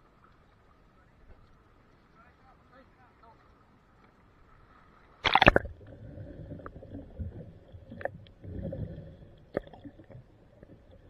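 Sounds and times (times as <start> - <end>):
sharp splash: 5.2 - 5.8
muffled underwater gurgling: 5.3 - 11.0.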